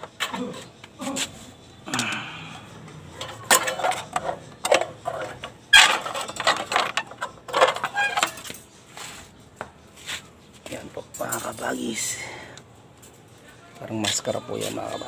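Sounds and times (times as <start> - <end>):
metal rod clinks and rattles: 2.8 - 8.8, 10.8 - 12.2.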